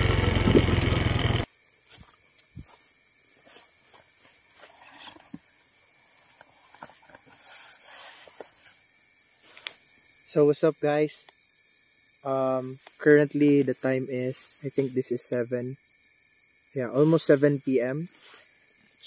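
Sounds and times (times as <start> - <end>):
motorcycle engine: 0.0 - 1.5
crickets chirping: 0.0 - 19.0
fabric hammock rustling: 6.2 - 9.6.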